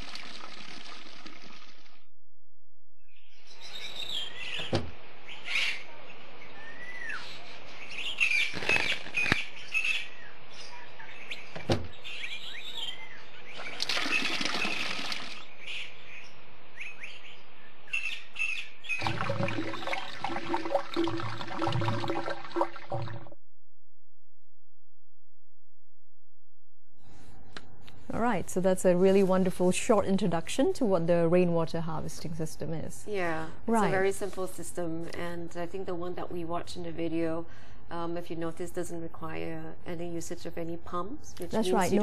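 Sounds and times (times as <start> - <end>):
birds chirping: 3.1 - 20.0.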